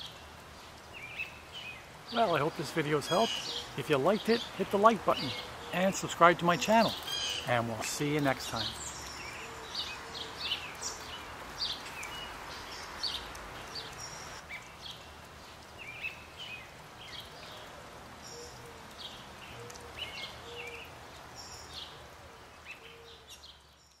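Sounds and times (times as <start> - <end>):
birds chirping: 0.0 - 15.2.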